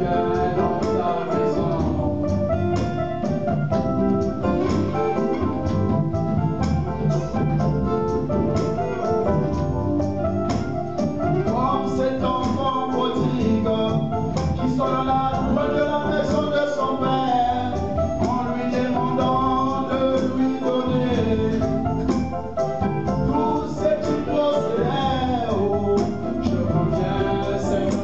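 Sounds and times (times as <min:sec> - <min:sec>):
man singing into a microphone: 0:00.0 - 0:02.3, 0:11.5 - 0:21.8, 0:23.3 - 0:28.0
hand drum beating: 0:00.0 - 0:16.5.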